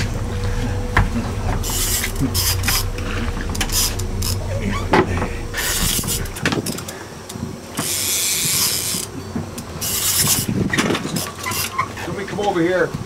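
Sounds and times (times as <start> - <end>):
fishing reel ratcheting: 7.8 - 9.1, 9.8 - 10.5, 11.2 - 11.8.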